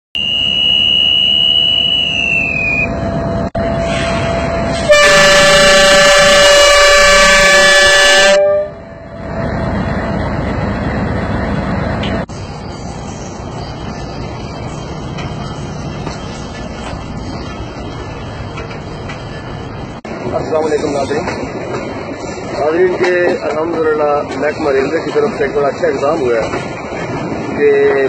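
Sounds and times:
high steady tone: 0.2 - 3.8
diesel locomotive engine rumble: 0.2 - 28.0
multi-tone train horn: 3.7 - 9.1.

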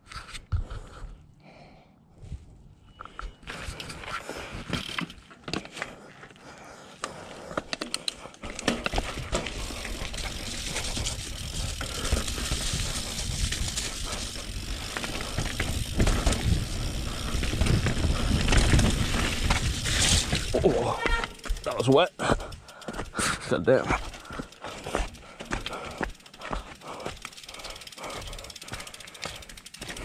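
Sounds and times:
tyres on dirt and rocks: 2.8 - 30.0
bike frame and chain rattling: 7.2 - 23.4, 24.0 - 30.0.

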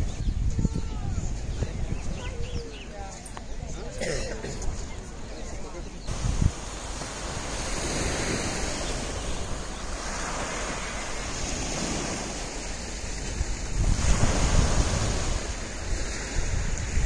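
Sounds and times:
wind buffeting microphone: 0.0 - 3.8, 6.0 - 17.0
steady wind: 0.0 - 17.0
small waves washing onto beach: 5.9 - 17.0.

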